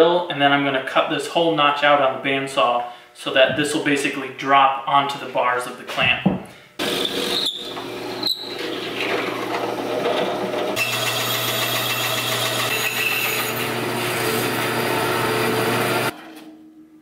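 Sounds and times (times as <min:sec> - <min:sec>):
bandsaw whining cutting wood: 0:06.8 - 0:16.1
drill press boring wood: 0:06.8 - 0:16.1.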